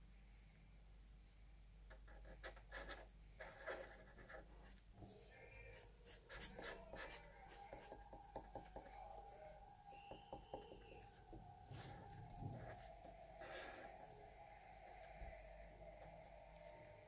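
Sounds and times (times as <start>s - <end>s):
marker pen scratching on paper: 1.9s - 14.2s.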